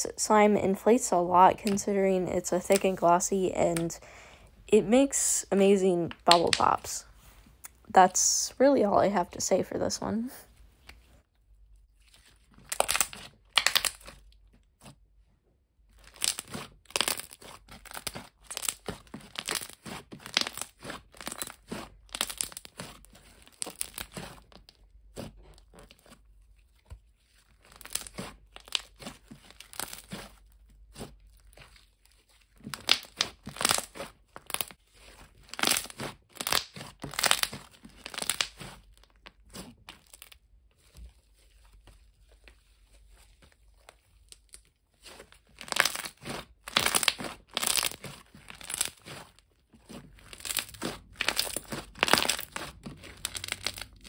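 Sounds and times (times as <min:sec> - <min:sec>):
slime popping and crackling: 0:06.1 - 0:07.0, 0:12.2 - 0:14.4, 0:15.9 - 0:26.2, 0:27.5 - 0:40.4, 0:43.9 - 0:54.0.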